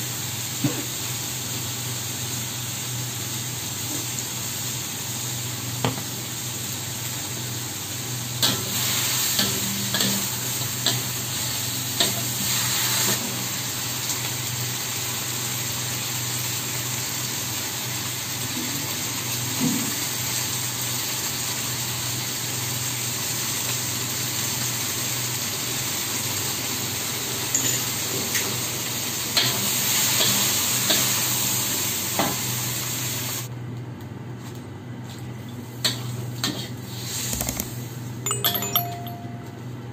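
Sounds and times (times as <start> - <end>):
shrimp sizzling in wok: 0.0 - 33.5.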